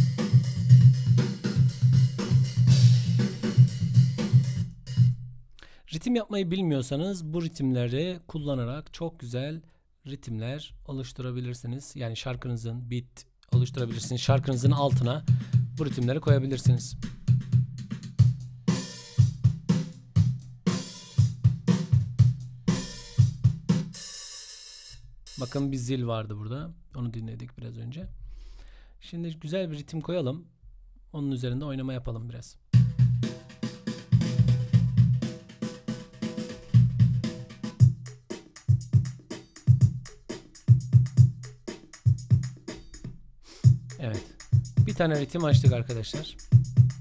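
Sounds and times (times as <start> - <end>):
rock drum kit beat: 0.0 - 5.2, 13.6 - 25.6, 32.8 - 47.0.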